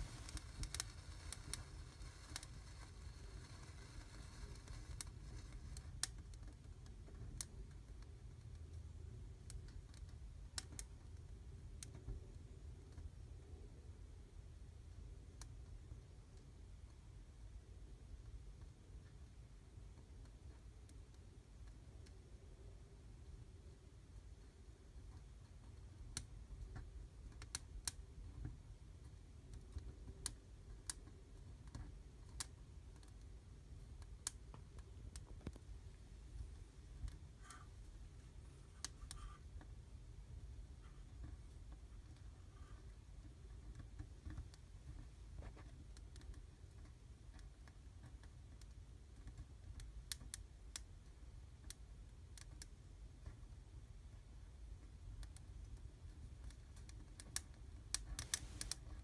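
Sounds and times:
twigs crackling in fire: 0.0 - 7.5, 56.5 - 59.0
fireplace fire crackling: 0.0 - 8.1, 23.0 - 59.0
faint low rumble: 0.0 - 59.0.

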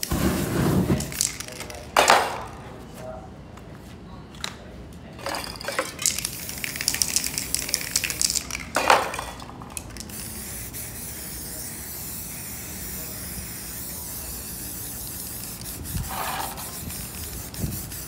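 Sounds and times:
spray paint cans clinking: 0.0 - 2.6, 5.2 - 18.0
aerosol spray can hissing: 10.0 - 18.0.

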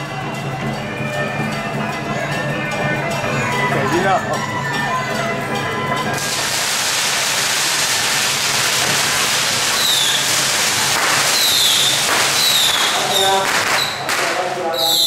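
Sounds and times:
firecrackers crackling: 6.1 - 15.0
high falling whistles: 9.8 - 10.4, 11.3 - 14.0, 14.8 - 15.0.

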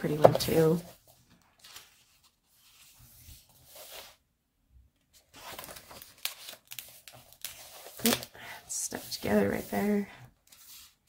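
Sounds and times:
paper page rustling: 0.9 - 4.2, 5.1 - 8.4, 9.0 - 11.0.

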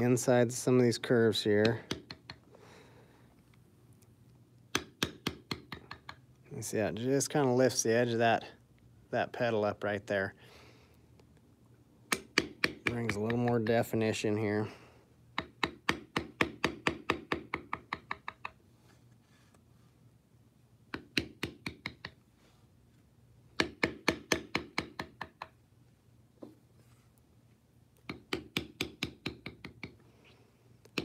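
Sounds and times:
mallet tapping leather tool: 1.6 - 2.4, 4.7 - 6.2, 12.1 - 13.7, 15.4 - 18.6, 20.9 - 22.2, 23.6 - 25.6, 28.0 - 30.0.

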